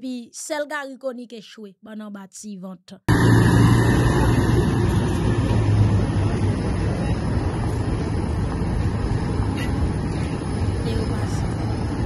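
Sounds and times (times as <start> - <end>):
outdoor noise: 3.0 - 12.0
vehicle engines rumbling: 3.1 - 12.0.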